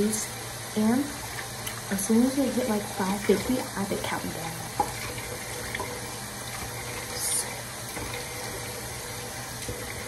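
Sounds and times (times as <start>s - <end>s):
tap running into sink: 4.7s - 7.2s, 7.9s - 10.0s.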